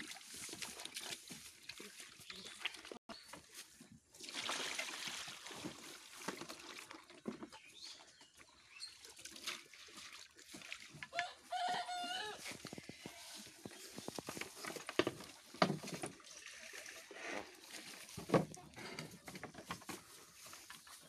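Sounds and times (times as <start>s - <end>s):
rustling of feed: 10.5s - 16.3s, 17.2s - 21.0s
rooster crowing: 11.1s - 12.4s
knocks on bucket and trough: 14.4s - 16.2s.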